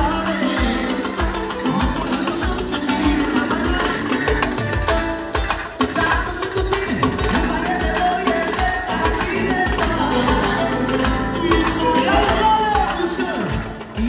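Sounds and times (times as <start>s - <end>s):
band playing amplified dance music: 0.0s - 14.0s
person singing into a microphone: 0.0s - 14.0s.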